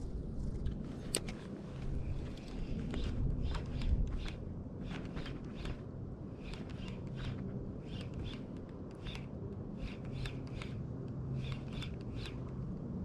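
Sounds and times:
steady low hum: 0.0 - 13.0
fishing reel clicky whirs: 2.3 - 12.6.

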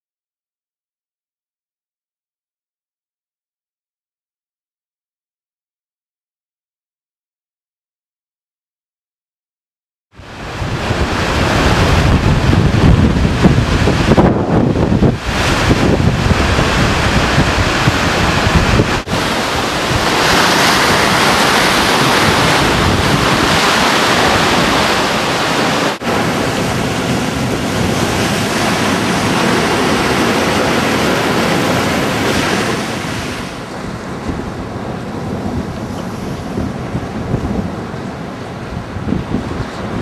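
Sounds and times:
storm surf breaking over rocks: 10.2 - 40.0
wind buffeting microphone: 10.2 - 40.0.

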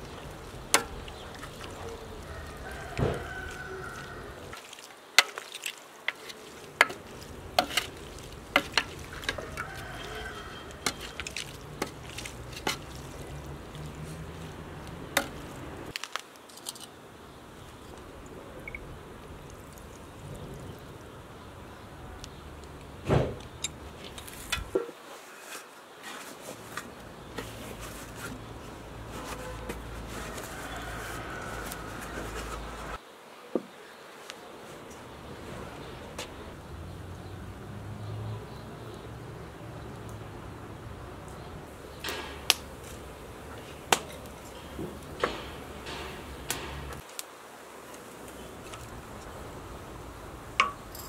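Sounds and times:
faint handling sounds: 0.0 - 17.0, 23.4 - 33.0
twigs cracking on fire: 0.0 - 21.6, 41.3 - 51.0
ceramic clink: 50.6 - 51.0.

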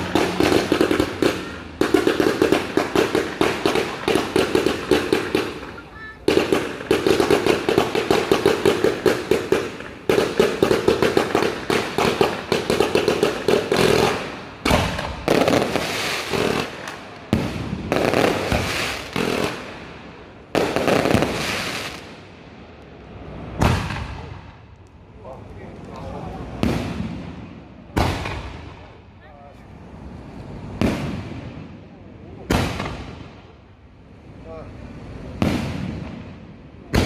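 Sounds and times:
fireworks cake firing shots: 0.0 - 19.8, 20.5 - 22.1, 23.6 - 24.6, 26.5 - 28.9, 30.7 - 31.6, 32.4 - 33.5, 35.4 - 37.0.

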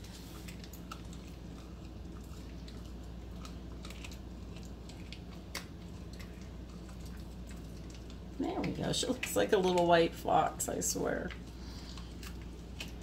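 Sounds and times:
puppy chewing bone: 0.0 - 10.4, 11.0 - 13.0
bone cracking: 0.4 - 8.3.

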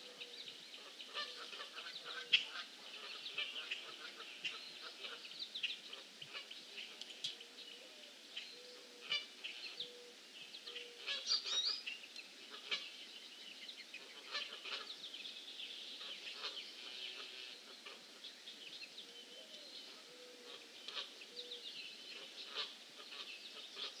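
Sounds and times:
birds singing and chirping: 0.0 - 24.0.

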